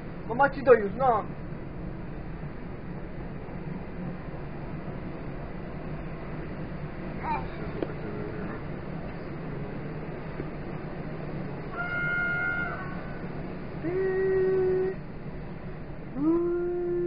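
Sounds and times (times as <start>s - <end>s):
electric train rumbling: 0.0s - 17.0s
train horn blasts: 11.8s - 13.2s.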